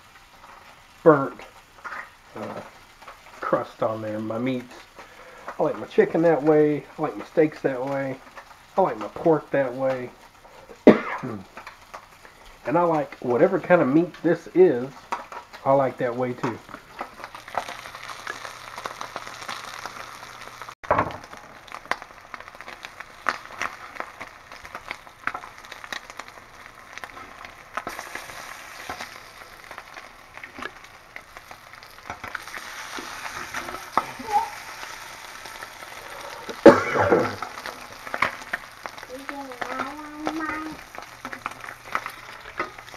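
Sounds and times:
meat sizzling and popping in a skillet: 0:00.0 - 0:42.9.

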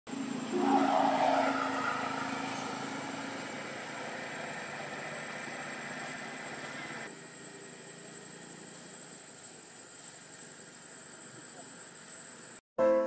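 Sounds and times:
vehicle passing by: 0:00.5 - 0:06.3.

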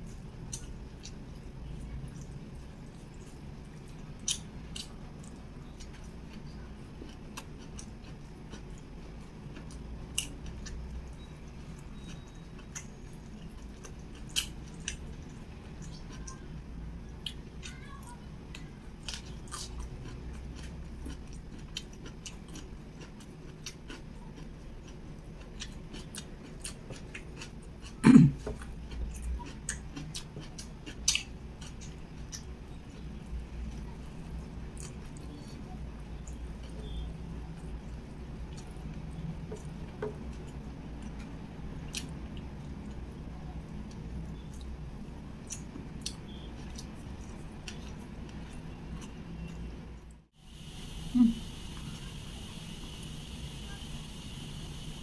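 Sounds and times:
wet chewing: 0:00.0 - 0:16.4, 0:18.5 - 0:35.5, 0:43.8 - 0:49.7.

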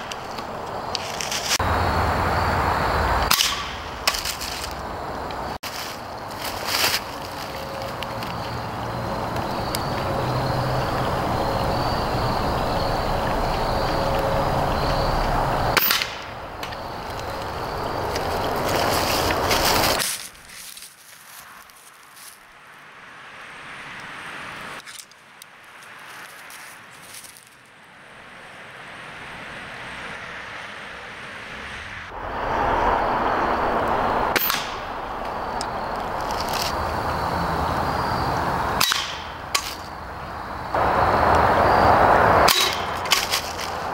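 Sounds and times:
pellet rifle shot crack: 0:03.3 - 0:04.2
steady rushing background: 0:03.7 - 0:20.0.

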